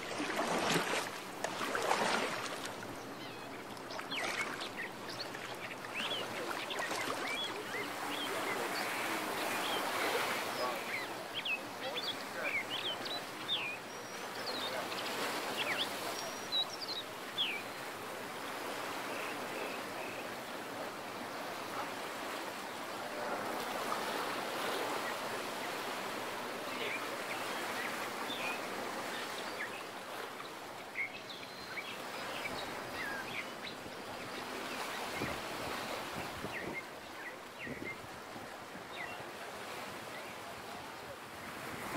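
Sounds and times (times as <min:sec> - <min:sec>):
sea water washing against rocks: 0:00.0 - 0:03.1.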